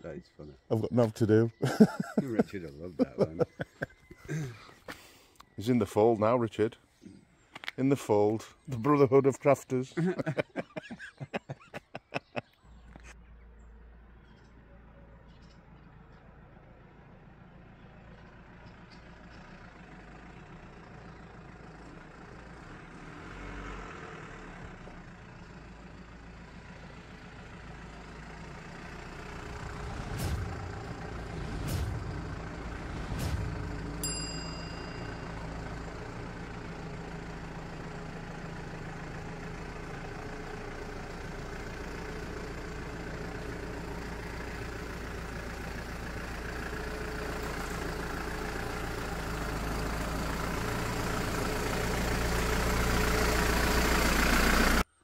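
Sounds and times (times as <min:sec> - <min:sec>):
diesel van engine running: 0:00.0 - 0:11.6, 0:12.2 - 0:55.0
short bell-like ding: 0:33.9 - 0:35.7.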